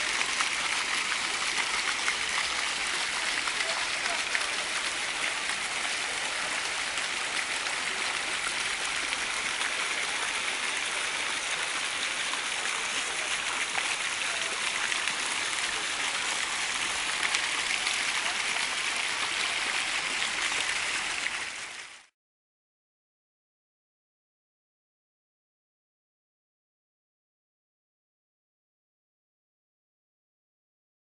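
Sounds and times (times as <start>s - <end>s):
fountain jets splashing into water: 0.0s - 22.1s.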